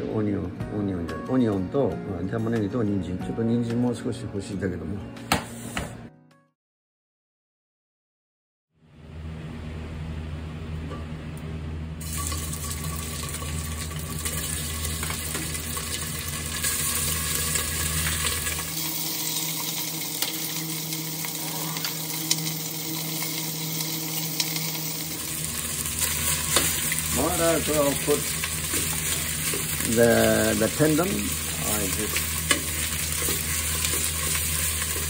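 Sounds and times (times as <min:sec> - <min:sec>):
steady low hum: 0:08.8 - 0:35.0
beef sizzling in a pot: 0:12.0 - 0:35.0.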